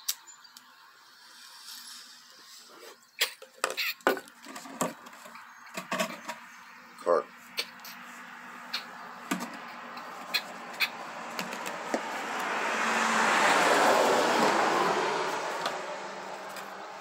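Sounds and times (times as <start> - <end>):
car passing by: 7.3 - 17.0.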